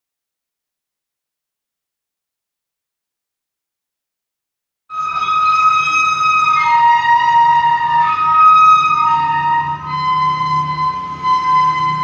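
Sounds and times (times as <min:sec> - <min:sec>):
trumpet-like tones from the sky: 0:04.9 - 0:12.0.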